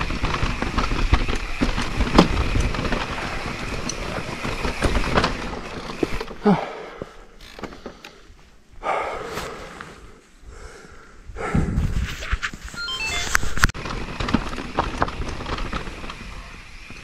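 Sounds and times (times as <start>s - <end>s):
wheels and frame knocking: 0.0s - 6.5s, 13.8s - 17.0s
bike rattling over loose rocks: 0.0s - 8.3s, 13.5s - 17.0s.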